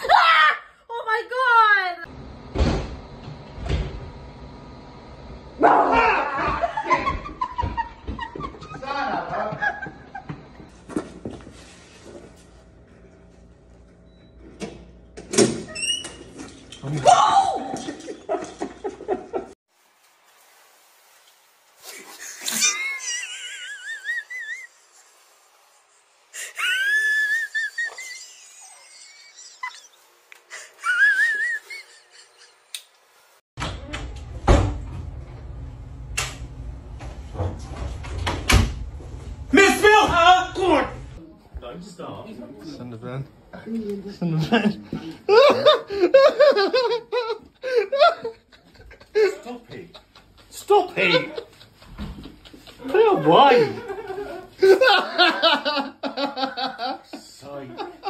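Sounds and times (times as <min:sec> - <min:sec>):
person shouting: 0:05.6 - 0:06.6
person wheezing laughter: 0:22.0 - 0:24.8, 0:26.4 - 0:29.9, 0:30.5 - 0:32.6.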